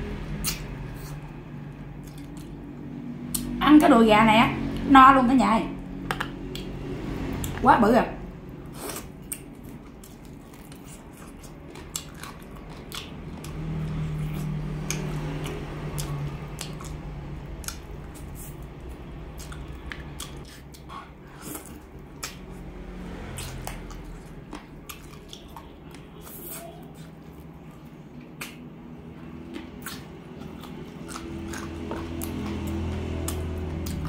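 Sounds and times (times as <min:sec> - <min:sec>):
low steady hum: 0:00.0 - 0:34.0
wet chewing and lip smacks: 0:08.9 - 0:18.6, 0:19.3 - 0:22.6, 0:23.2 - 0:27.5.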